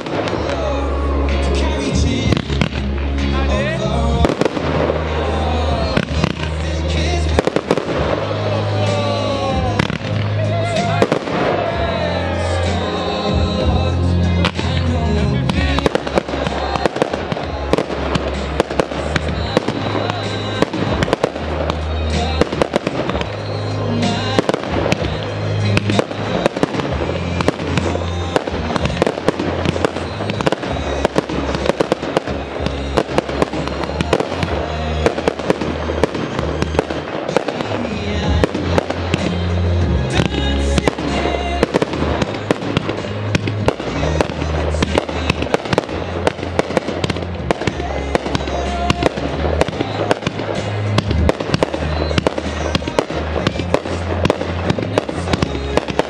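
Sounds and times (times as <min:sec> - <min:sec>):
music with heavy bass: 0:00.0 - 0:56.0
firework shells bursting: 0:14.4 - 0:56.0.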